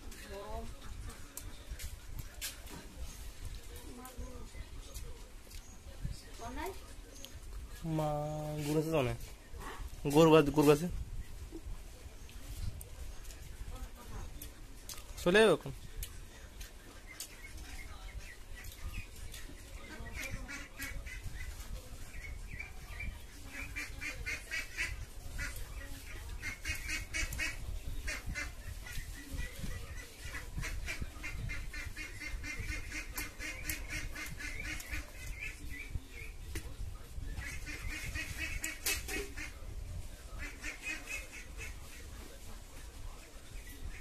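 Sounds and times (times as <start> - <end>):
ducks quacking: 16.5 - 36.4, 37.3 - 42.4, 43.6 - 44.0.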